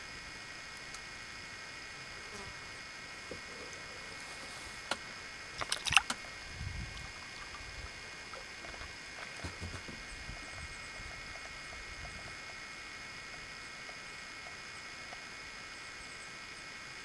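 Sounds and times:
high insect buzzing: 0:01.8 - 0:10.8.

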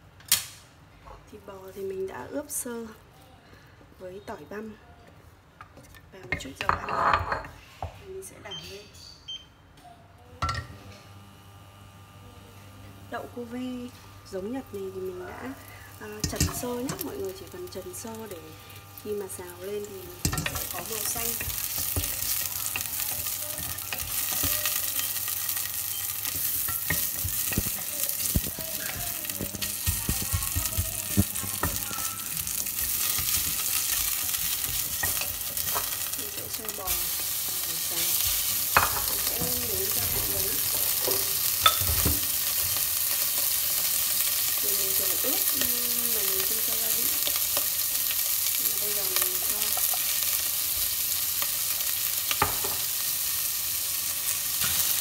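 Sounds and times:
garlic sizzling in hot oil: 0:12.9 - 0:55.0
wooden spatula scraping metal pot: 0:20.2 - 0:45.7.

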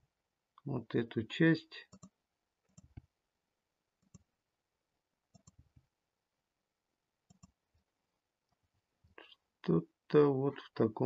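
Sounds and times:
mouse and keyboard clicks: 0:02.7 - 0:03.1, 0:05.3 - 0:05.6, 0:07.3 - 0:07.6.

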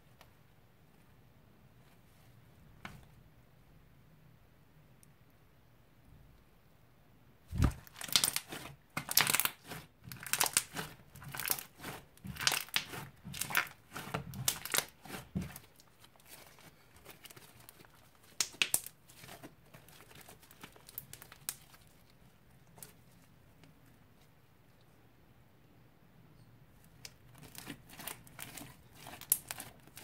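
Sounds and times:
slime crackling and popping: 0:07.5 - 0:21.9, 0:27.0 - 0:30.0.

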